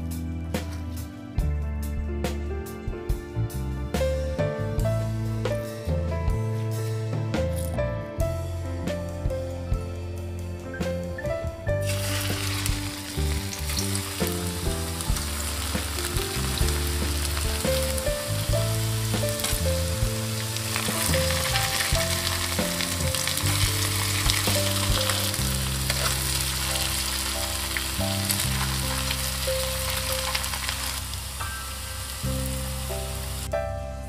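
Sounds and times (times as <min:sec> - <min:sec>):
background music of low notes: 0:00.0 - 0:34.0
hot oil sizzling: 0:11.8 - 0:33.5.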